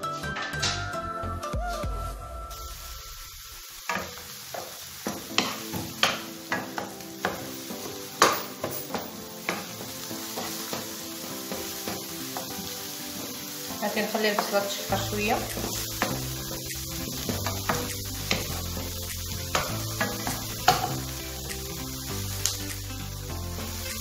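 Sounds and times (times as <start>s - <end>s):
onion sizzling in oil: 1.7s - 24.0s
spatula tapping and scraping pan: 3.9s - 13.4s, 15.3s - 21.7s.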